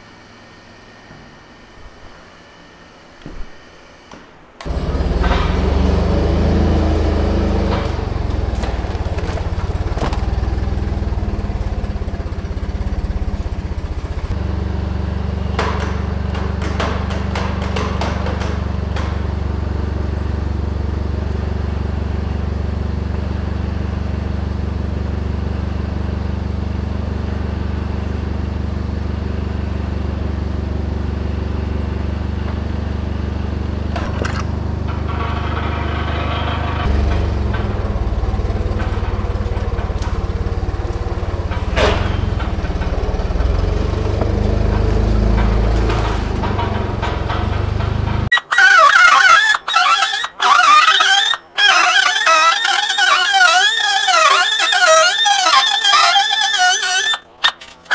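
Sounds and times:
forklift engine idling: 4.6 - 48.7.

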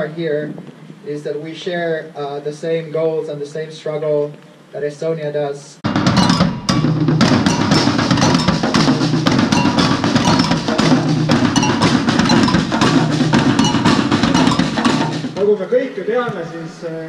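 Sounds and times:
bass drums: 5.9 - 15.4
snare drums: 5.9 - 15.5.

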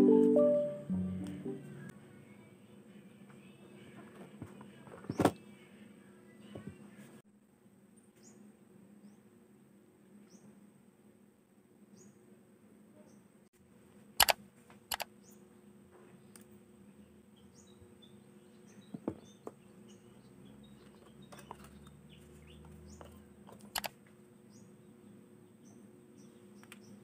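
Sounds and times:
small birds chirping: 8.1 - 9.3, 10.2 - 10.6, 15.1 - 27.0.

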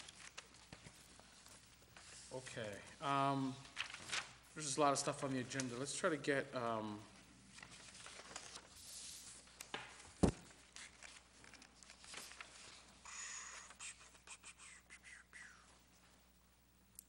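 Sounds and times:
paper rustling: 0.0 - 5.9, 7.1 - 14.2.

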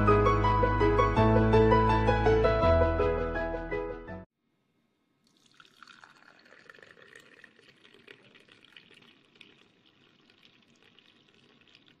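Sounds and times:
tea pouring into metal tumbler: 5.2 - 12.0.

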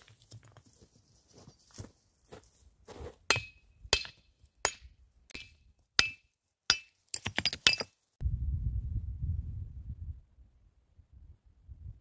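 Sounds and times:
hatchet striking rock: 3.3 - 7.9.

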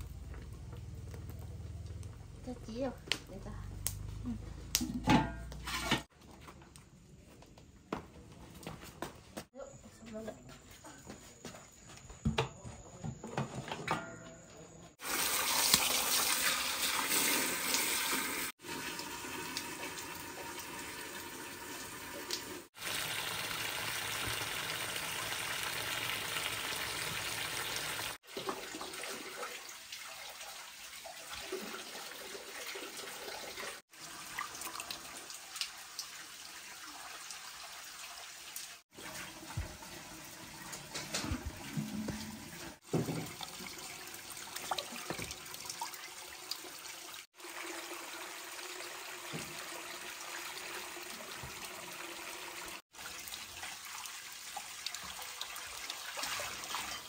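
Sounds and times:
water running and splashing: 15.0 - 57.0.

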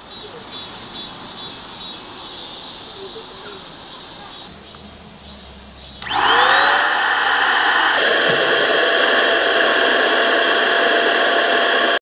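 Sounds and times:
small electric motor whining: 6.0 - 12.0.

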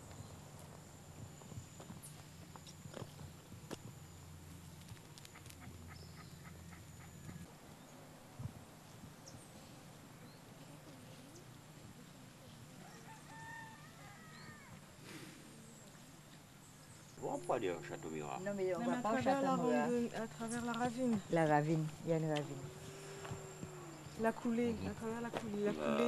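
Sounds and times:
rooster crowing faintly: 12.6 - 14.8.

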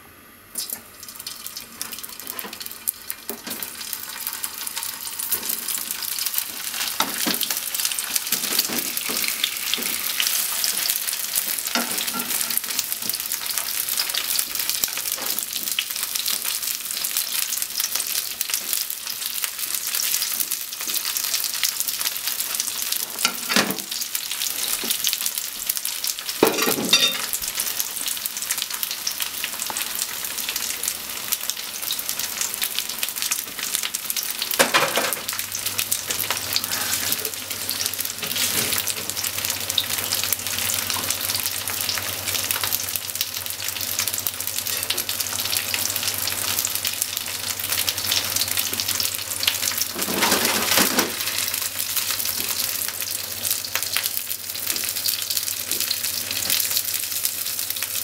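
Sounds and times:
tofu sizzling in hot oil: 0.6 - 58.0.

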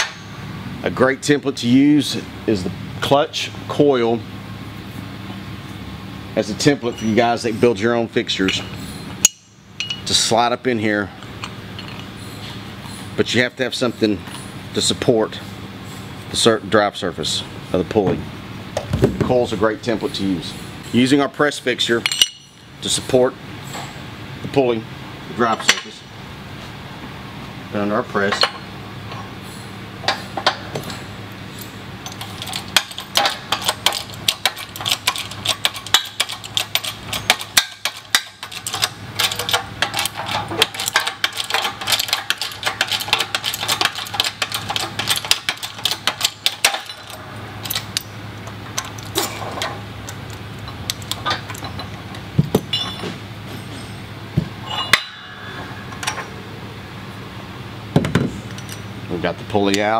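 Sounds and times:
steady low hum: 0.0 - 59.9
metal parts knocking: 8.5 - 10.2, 32.1 - 53.2.

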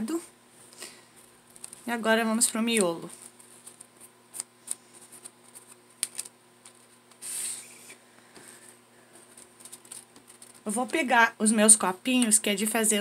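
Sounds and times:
craft materials rustling: 1.2 - 11.0.

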